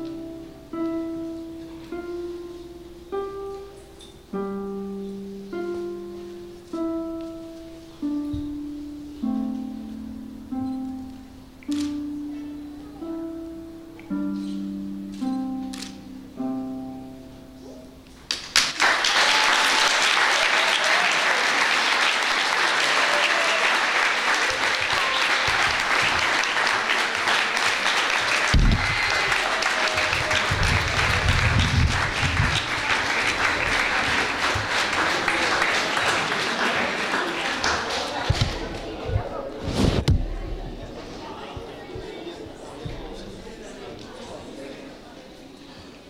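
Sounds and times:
harp plucked notes: 0.0s - 18.3s
applause: 18.3s - 38.4s.

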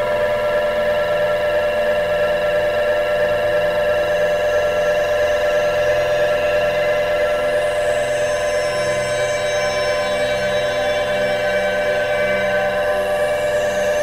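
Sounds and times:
dissonant ambient electronic music: 4.4s - 14.0s.

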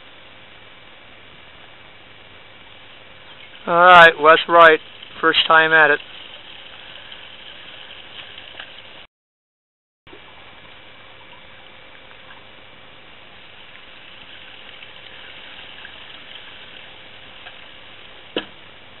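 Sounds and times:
running water hiss: 0.0s - 9.0s, 10.1s - 19.0s.

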